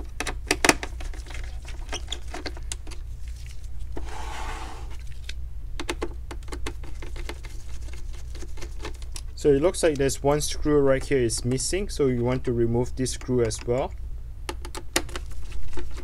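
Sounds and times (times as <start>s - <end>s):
low steady hum: 0.0s - 16.0s
rustling scrape on bench: 3.8s - 5.0s.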